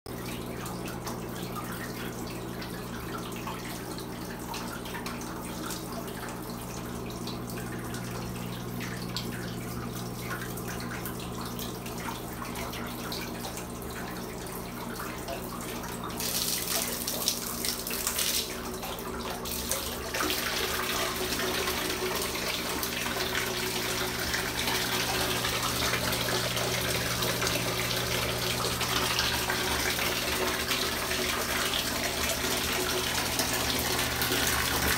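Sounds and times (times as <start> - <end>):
water jet splashing into bathtub: 8.8 - 34.9.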